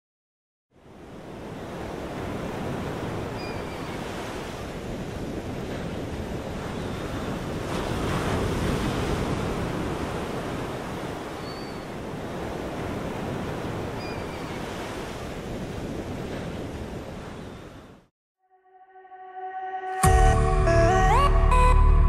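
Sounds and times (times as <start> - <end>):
wind buffeting microphone: 1.2 - 18.0.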